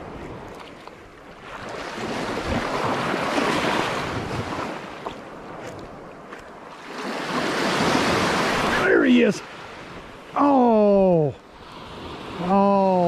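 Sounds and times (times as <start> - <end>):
wind buffeting microphone: 0.0 - 6.6
surf breaking on beach: 1.4 - 5.1, 6.7 - 13.0.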